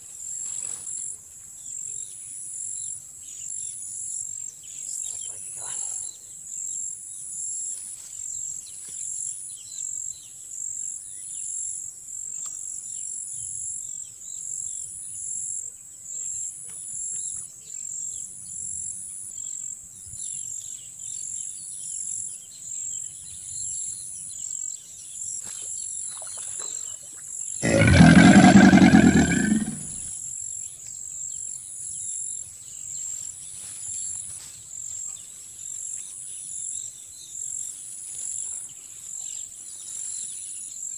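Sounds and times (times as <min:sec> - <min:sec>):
loud low pitched call: 0:27.6 - 0:30.0.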